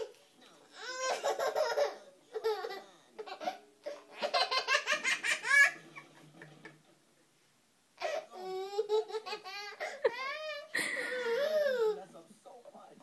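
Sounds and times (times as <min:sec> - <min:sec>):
toddler belly-laughing: 0:00.8 - 0:05.8.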